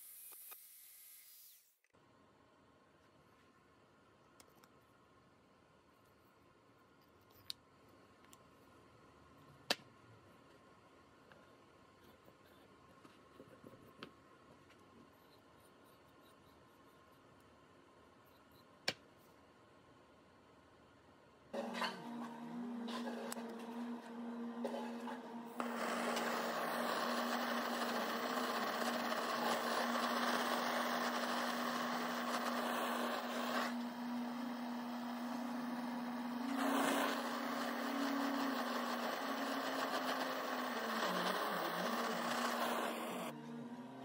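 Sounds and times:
gas torch hissing: 25.6 - 43.3.

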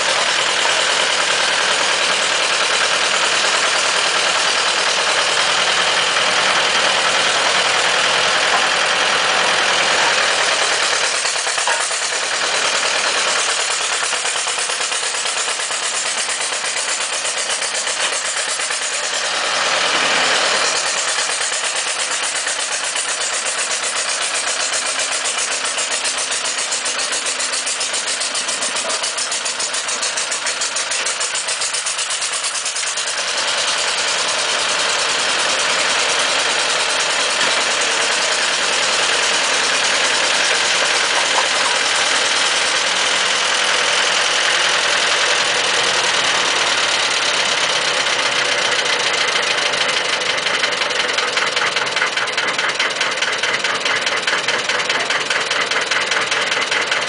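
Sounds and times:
excavator engine running: 0.0 - 57.0.

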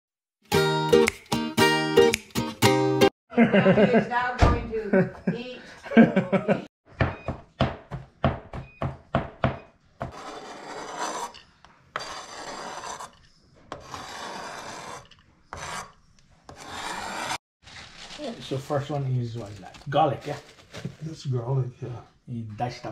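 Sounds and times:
blade scraping across board: 10.1 - 17.4.

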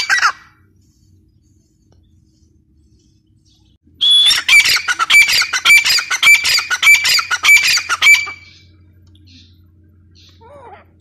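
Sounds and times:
francolin calling harshly: 4.0 - 10.7.

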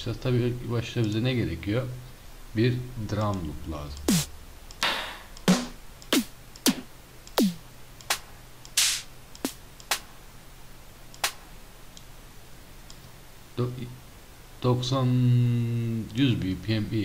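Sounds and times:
electronic snare drum hits: 4.1 - 10.1, 11.2 - 11.4.

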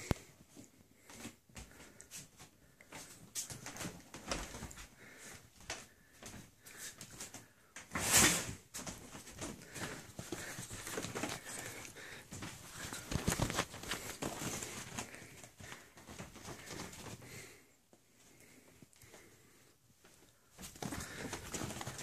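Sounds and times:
bed covers rustling: 0.0 - 19.3, 19.9 - 22.0
ferret scuffling on bedding: 7.2 - 17.4, 20.5 - 22.0.

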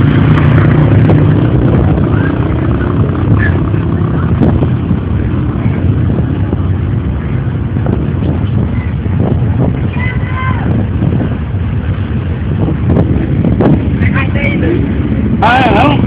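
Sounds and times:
vehicle engines running: 0.0 - 16.0.

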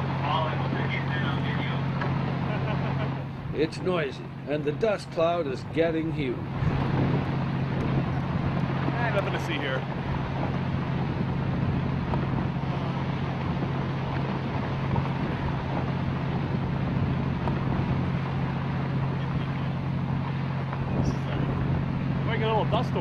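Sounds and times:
boat engine humming: 0.0 - 23.0
wind noise on microphone: 5.5 - 23.0.

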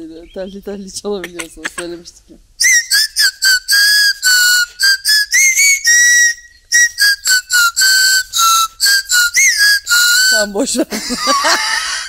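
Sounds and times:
toy whistle playing a tune: 2.6 - 10.6.

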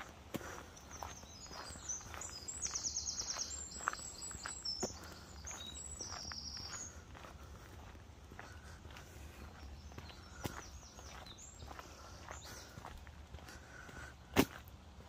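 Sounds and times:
footsteps crunching on gravel: 0.0 - 15.0
high trilling bird song: 0.4 - 7.3, 9.2 - 13.0.

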